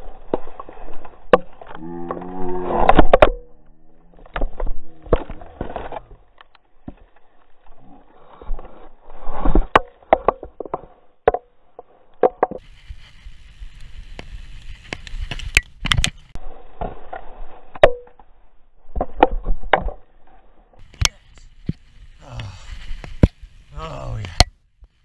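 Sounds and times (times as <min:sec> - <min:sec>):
mountain bike rattling on dirt trail: 0:00.0 - 0:17.5.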